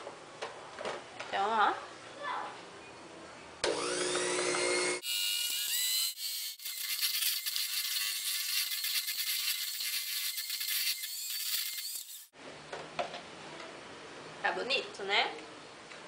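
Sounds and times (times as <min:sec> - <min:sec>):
electric mixer motor whining: 0:03.6 - 0:07.6.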